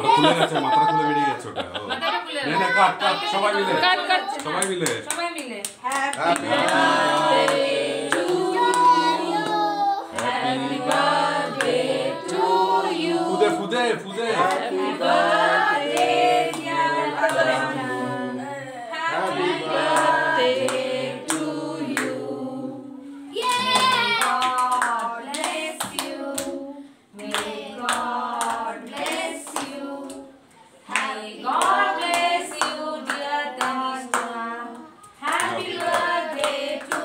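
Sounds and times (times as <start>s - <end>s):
group singing birthday song: 1.6s - 37.0s
people clapping in time: 4.4s - 9.0s, 23.4s - 26.5s, 35.2s - 37.0s.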